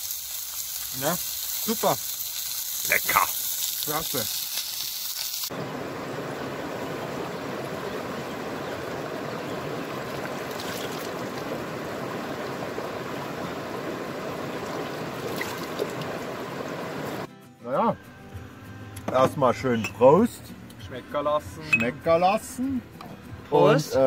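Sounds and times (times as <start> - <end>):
faint water splashes: 5.5 - 17.3
river rushing over stones: 5.5 - 17.3.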